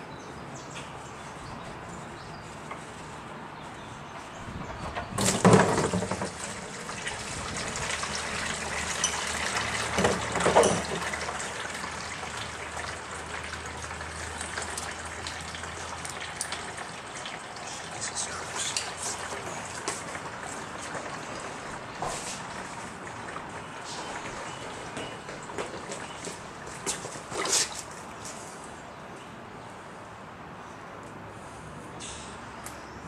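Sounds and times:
oil pouring into drain pan: 5.2s - 18.0s.

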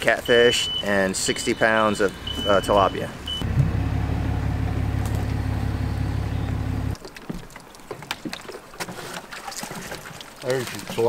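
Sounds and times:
truck engine idling: 2.1s - 7.0s.

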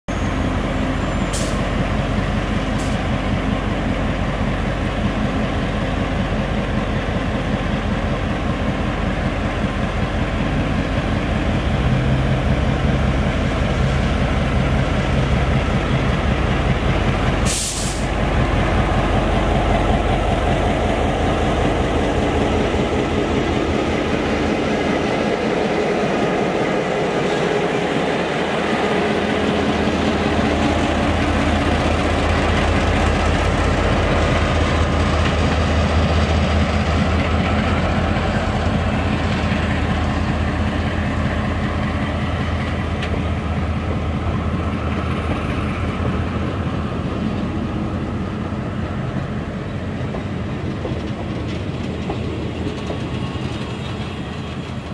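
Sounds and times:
diesel locomotive engine drone: 0.1s - 54.9s
burst of hiss: 17.5s - 18.2s.

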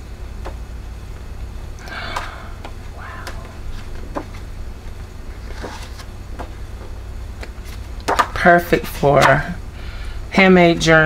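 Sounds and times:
steady low hum: 0.0s - 11.0s
paper rustling: 5.3s - 6.5s.

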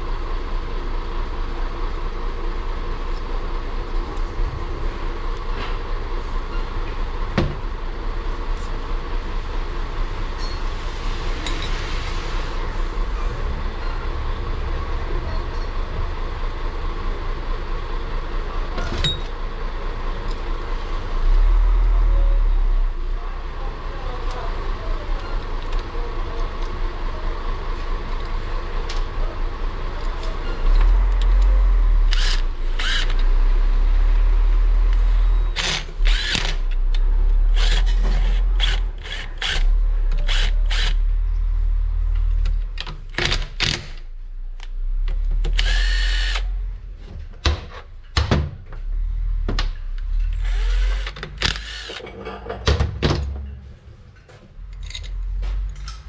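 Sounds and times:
cordless drill running: 32.1s - 33.2s, 35.5s - 36.8s, 37.5s - 41.1s, 45.5s - 46.5s, 50.3s - 52.0s.

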